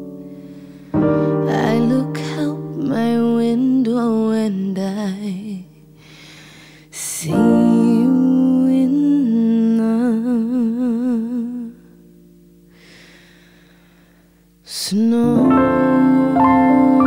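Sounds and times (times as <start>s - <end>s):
sustained piano chords: 0.0s - 14.1s, 15.0s - 17.0s
singer breathing: 0.2s - 1.4s, 6.0s - 7.0s, 12.7s - 14.6s
woman singing with vibrato: 1.2s - 5.8s, 6.9s - 11.8s, 14.7s - 17.0s.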